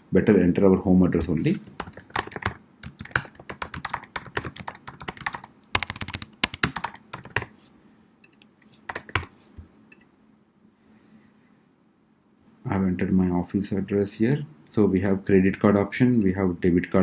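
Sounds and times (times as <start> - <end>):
typing on computer keyboard: 1.8 - 7.5, 8.3 - 9.3.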